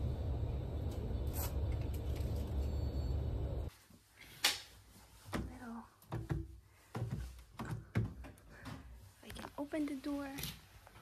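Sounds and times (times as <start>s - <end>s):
steady low rumble: 0.0s - 3.7s.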